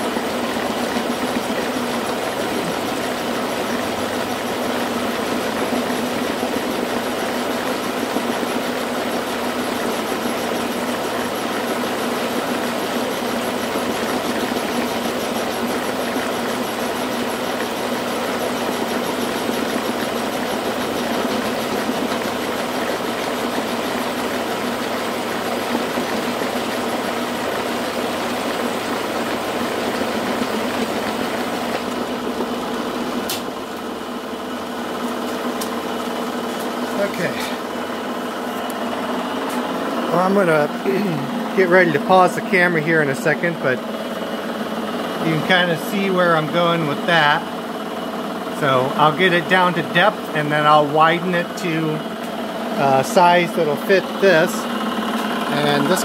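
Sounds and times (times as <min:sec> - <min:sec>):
high whine of end mill cutting: 0:00.0 - 0:56.0
milling machine motor hum: 0:00.0 - 0:56.0
sharp click: 0:33.3 - 0:33.5.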